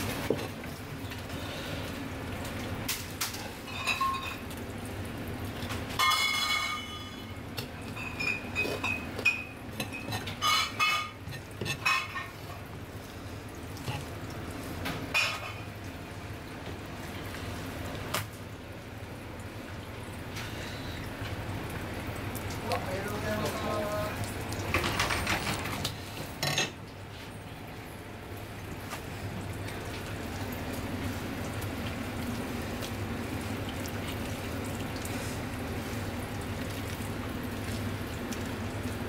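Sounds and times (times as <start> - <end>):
low background hum: 0.0 - 39.0
utensils and dishes clinking: 2.9 - 4.6, 5.7 - 12.7, 15.1 - 15.7, 23.1 - 26.8.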